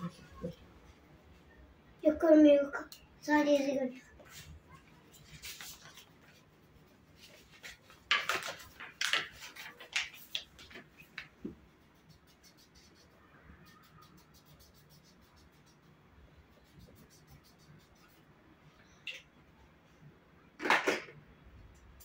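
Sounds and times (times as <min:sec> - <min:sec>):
pencil scratching on paper: 0:11.6 - 0:18.3.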